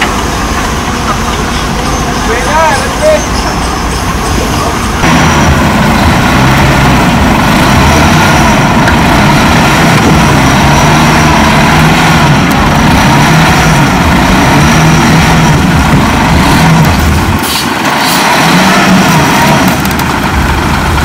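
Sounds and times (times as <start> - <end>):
heavy diesel engine running: 0.0 - 21.0.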